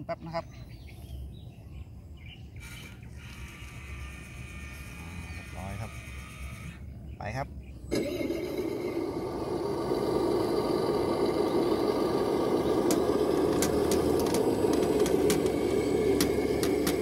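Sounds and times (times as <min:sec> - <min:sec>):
toy truck motor running: 0:02.6 - 0:06.9, 0:07.9 - 0:17.0
sharp clicks: 0:12.8 - 0:17.0.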